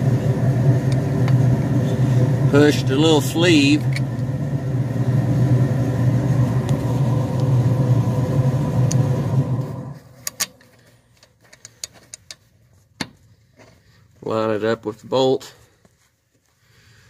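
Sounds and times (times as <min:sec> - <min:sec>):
engine hum: 0:00.0 - 0:12.3
metal parts clicking and tapping: 0:10.3 - 0:13.2.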